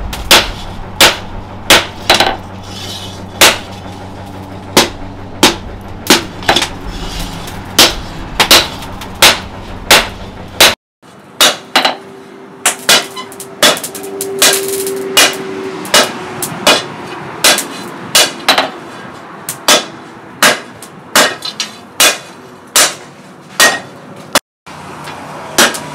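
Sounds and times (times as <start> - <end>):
hammer ringing on hot steel: 11.4 - 18.7.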